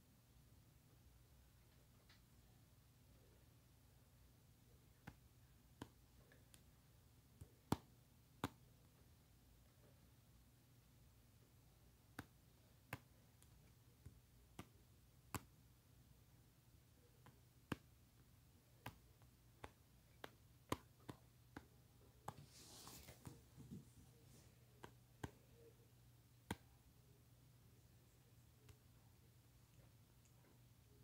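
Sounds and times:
faint low hum: 0:00.0 - 0:31.0
soft rustle: 0:22.1 - 0:25.0.

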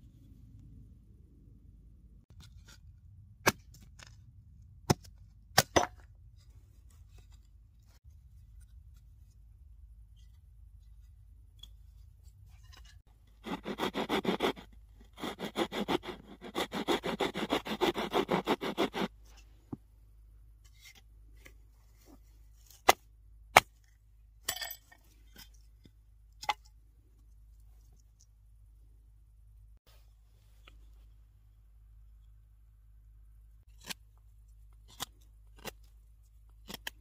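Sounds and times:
knife shaving wooden stick: 0:06.8 - 0:19.5.

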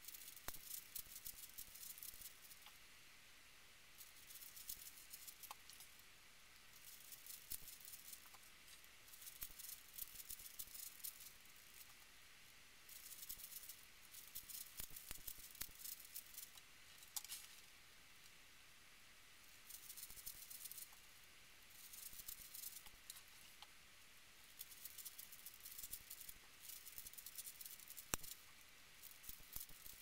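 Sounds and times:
puzzle cube layers clicking: 0:12.9 - 0:16.6, 0:24.6 - 0:30.0.

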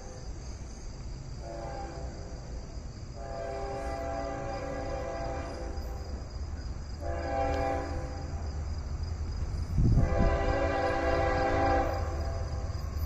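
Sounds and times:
locomotive air horn blasts: 0:01.4 - 0:02.2, 0:03.2 - 0:06.0, 0:07.0 - 0:08.3, 0:10.0 - 0:12.7.

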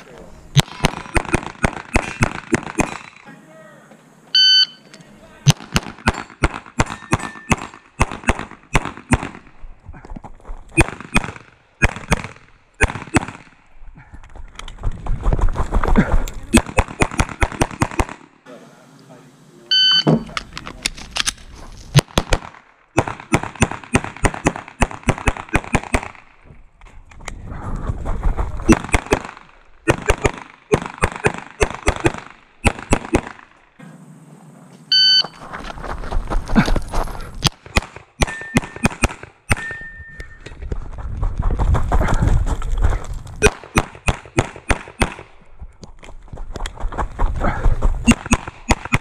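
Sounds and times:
pistol shots: 0:00.5 - 0:03.2, 0:05.4 - 0:09.5, 0:10.8 - 0:13.6, 0:16.5 - 0:18.3, 0:22.0 - 0:26.3, 0:28.7 - 0:33.5, 0:37.4 - 0:39.7, 0:43.4 - 0:45.4
movement noise: 0:18.5 - 0:22.0, 0:33.8 - 0:37.7, 0:39.7 - 0:43.4.

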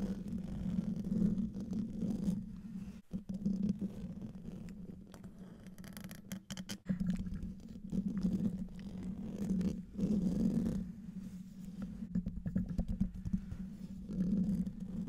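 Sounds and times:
fingers scratching microphone grille: 0:00.0 - 0:15.0
sharp taps on microphone grille: 0:11.8 - 0:13.6.

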